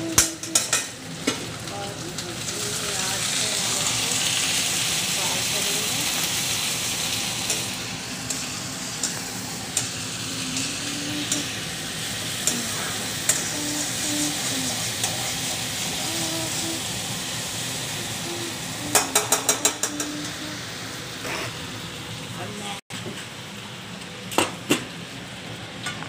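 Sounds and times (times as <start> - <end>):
food sizzling in oil with pops: 0.0 - 20.5
utensil clicking against pan: 18.9 - 20.1.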